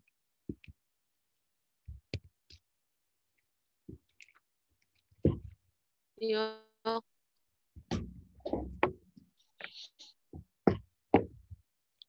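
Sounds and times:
soft knocks: 0:07.8 - 0:09.1.

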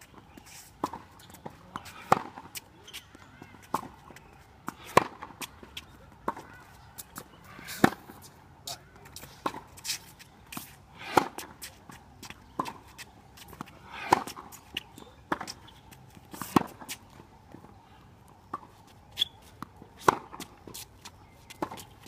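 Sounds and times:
racket hitting tennis ball: 0:00.5 - 0:03.0, 0:04.7 - 0:05.5, 0:06.2 - 0:08.2, 0:09.1 - 0:17.0, 0:18.5 - 0:20.9
tennis ball bouncing: 0:00.6 - 0:08.3, 0:10.5 - 0:17.7, 0:18.5 - 0:22.0.

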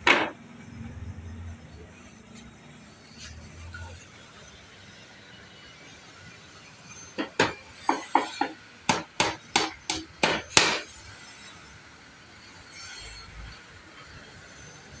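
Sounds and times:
hammer striking nails into wood: 0:07.2 - 0:10.9.

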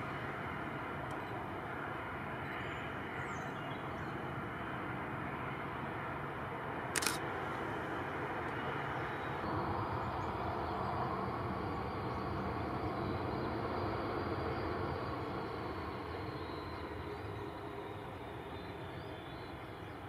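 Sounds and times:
jet engines at taxi power: 0:00.0 - 0:20.0
sharp click: 0:07.0 - 0:07.2.

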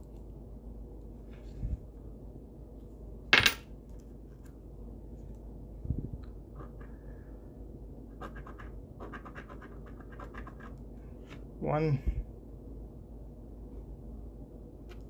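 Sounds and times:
scratching a lottery ticket: 0:08.1 - 0:10.8.

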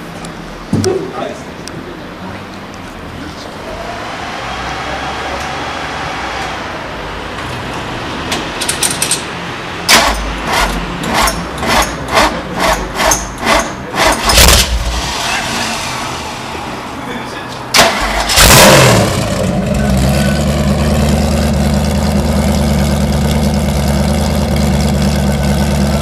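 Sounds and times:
engine cranking on starter: 0:09.9 - 0:15.2, 0:17.7 - 0:19.6.

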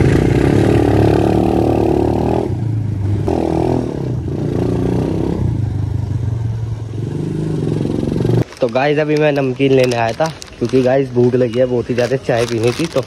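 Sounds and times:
dirt bike engine revving: 0:00.0 - 0:05.6, 0:07.0 - 0:08.4.

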